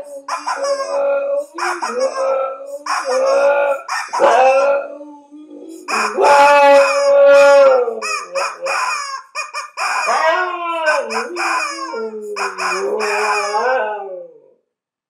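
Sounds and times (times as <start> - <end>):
rubber chicken toy squawking: 0.0 - 4.7, 5.7 - 13.8
dog howling: 0.0 - 9.1, 9.9 - 14.6.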